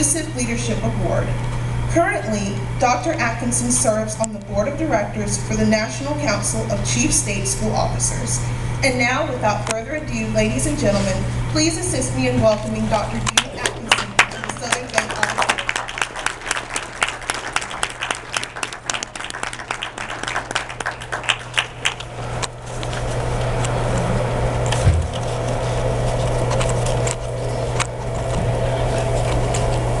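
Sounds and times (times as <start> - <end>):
low hum with hiss: 0.0 - 30.0
audience applauding: 13.6 - 22.2.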